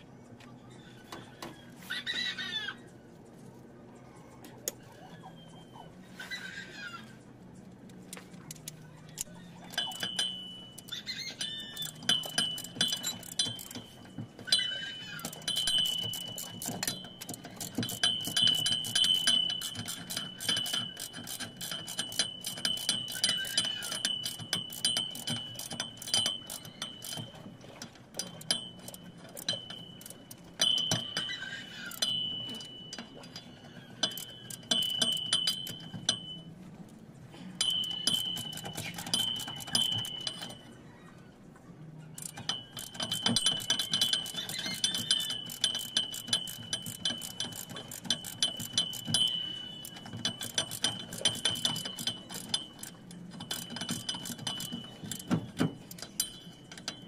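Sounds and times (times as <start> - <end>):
ratchet wrench clicking: 9.2 - 27.4, 28.1 - 32.8, 34.0 - 36.3, 37.6 - 40.6, 42.2 - 57.0.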